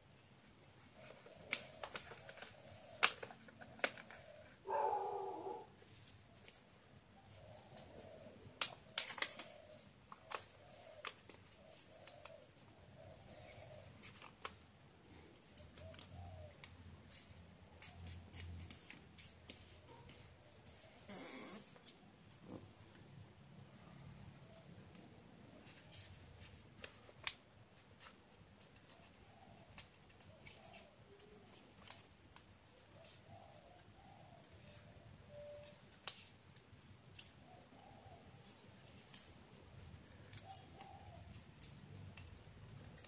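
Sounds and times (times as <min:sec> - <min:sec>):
paper rustling and crackling: 0:00.9 - 0:04.6, 0:08.6 - 0:12.6, 0:25.6 - 0:32.4
soft low animal calls: 0:03.7 - 0:05.8
animal call: 0:04.2 - 0:05.8.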